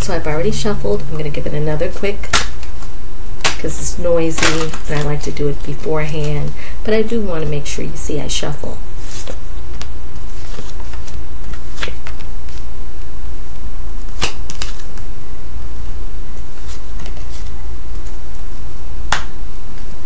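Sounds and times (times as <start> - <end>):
steady low hum: 0.0 - 20.0
cards being shuffled: 9.0 - 12.7, 14.0 - 15.1, 16.4 - 20.0
sharp card snaps: 14.1 - 14.9.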